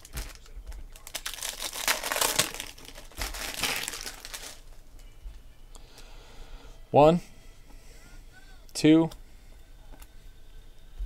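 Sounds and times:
foil wrappers crinkling: 0.0s - 4.8s.

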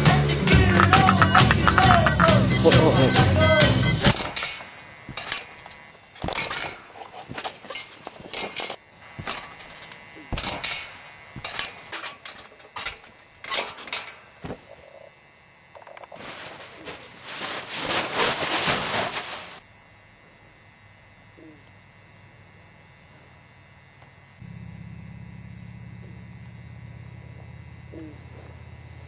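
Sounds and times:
rustling of bedding: 16.1s - 19.6s.

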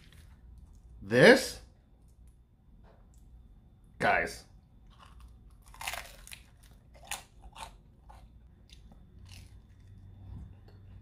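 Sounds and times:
person chewing crisp crust: 4.8s - 10.2s.

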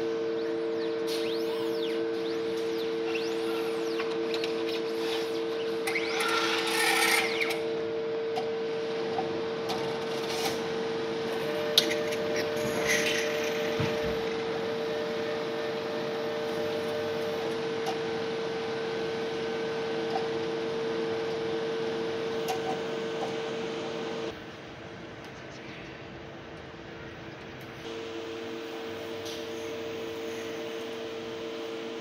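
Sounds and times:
steady electrical hum: 0.0s - 32.0s
motor whirring: 1.2s - 7.6s.

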